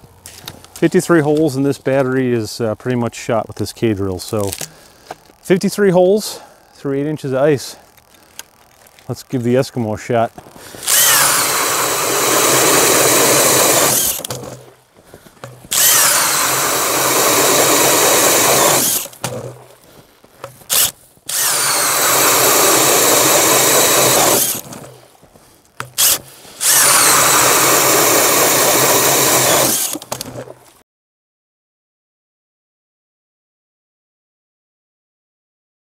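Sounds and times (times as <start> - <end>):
drill motor whining boring ice: 10.4 - 14.7, 15.5 - 19.6, 20.7 - 25.0, 25.8 - 30.4.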